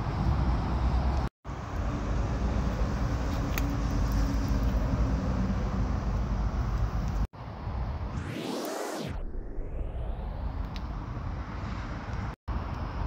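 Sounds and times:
traffic rumble: 0:00.0 - 0:08.2, 0:10.0 - 0:13.0.

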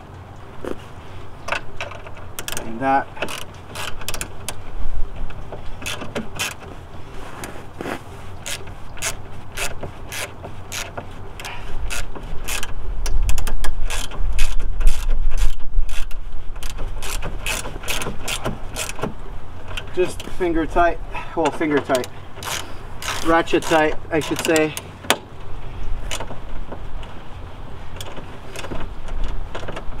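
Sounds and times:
hand ratchet clicking: 0:01.5 - 0:04.6, 0:08.4 - 0:19.1, 0:21.8 - 0:25.2.

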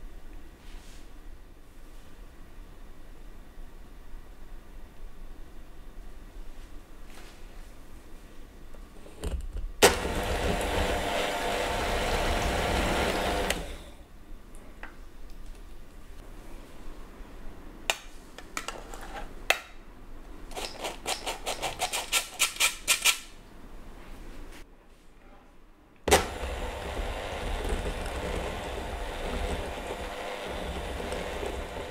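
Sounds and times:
electric hand mixer running: 0:09.8 - 0:14.0, 0:26.1 - 0:31.9.

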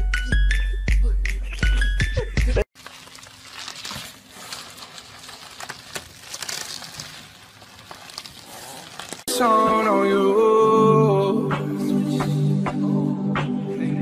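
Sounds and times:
bubble wrap rustling and crinkling: 0:02.7 - 0:09.3.

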